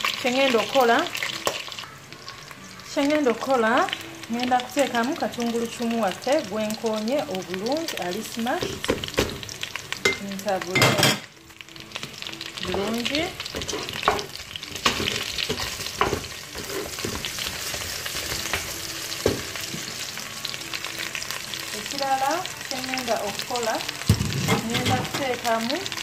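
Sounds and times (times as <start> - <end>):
meat sizzling in a pot: 0.0 - 26.0
spatula scraping a pot: 15.0 - 17.4.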